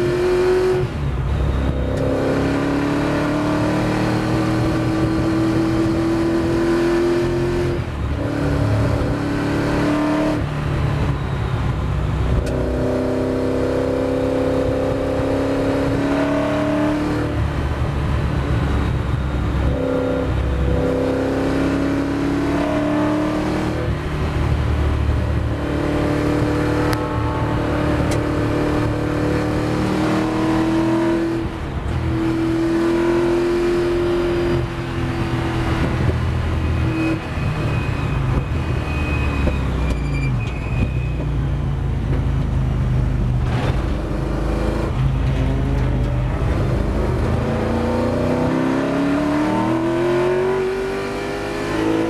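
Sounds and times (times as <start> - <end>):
racing car engine revving: 1.6 - 10.5, 19.6 - 38.4, 43.4 - 52.0.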